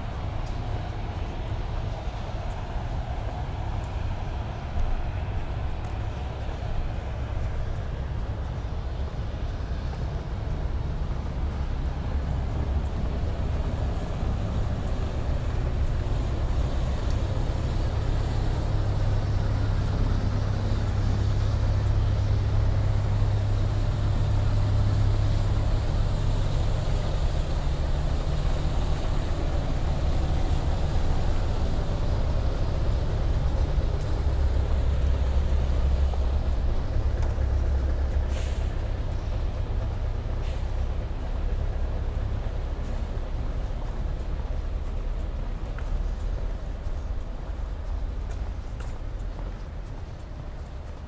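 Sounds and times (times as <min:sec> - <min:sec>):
heavy vehicle engine rumbling: 0:00.0 - 0:51.0
brief hiss: 0:38.3 - 0:38.7.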